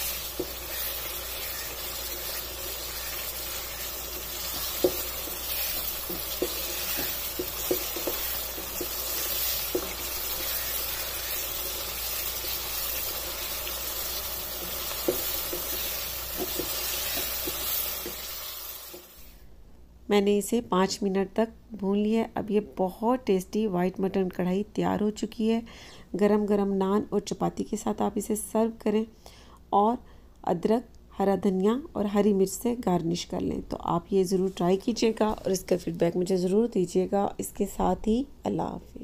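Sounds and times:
wooden spatula scraping a pan: 0.0 - 11.5, 14.6 - 19.3
meat sizzling in a pan: 0.0 - 19.4.

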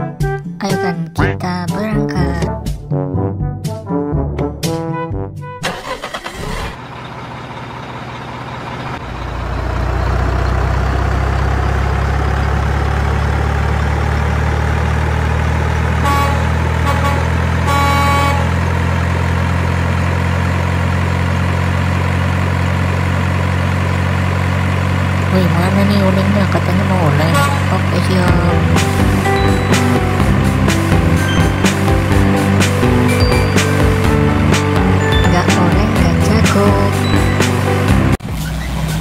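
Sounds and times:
truck engine running: 5.6 - 39.0
truck horn blasts: 15.8 - 19.0, 27.0 - 37.6.

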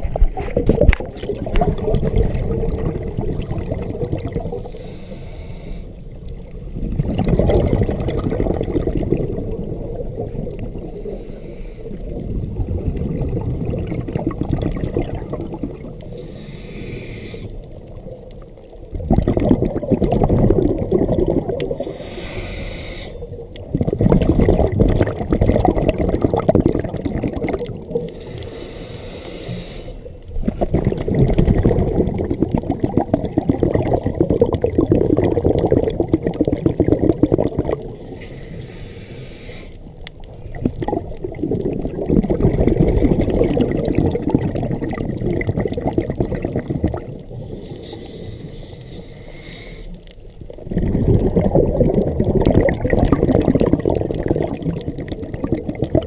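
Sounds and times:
exhaled air bubbling underwater: 0.0 - 56.0
regulator inhale hisses: 4.5 - 6.0, 10.8 - 12.0, 16.0 - 17.6, 21.8 - 23.3, 28.0 - 30.2, 38.0 - 39.9, 47.4 - 50.2.

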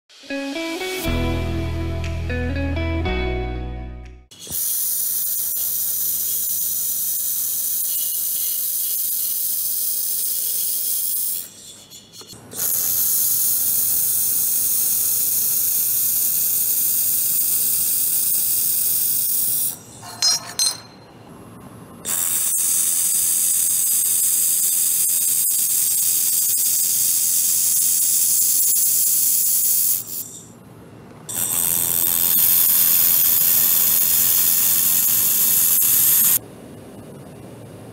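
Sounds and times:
laser welder hissing: 4.4 - 11.6, 31.6 - 36.4.

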